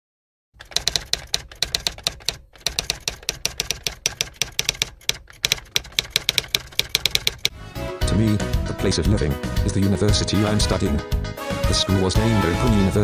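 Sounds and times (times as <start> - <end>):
typewriter key clicks: 0.6 - 7.5.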